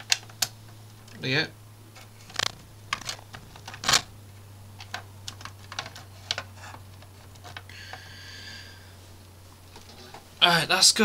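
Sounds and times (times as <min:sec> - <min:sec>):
steady low hum: 0:00.0 - 0:11.0
plastic parts clicking: 0:02.3 - 0:04.1, 0:04.8 - 0:07.7.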